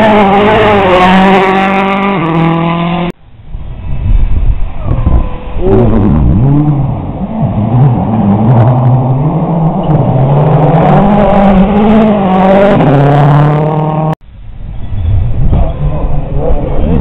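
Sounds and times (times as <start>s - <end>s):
rally car engine revving past: 0.0s - 3.1s, 5.4s - 14.2s.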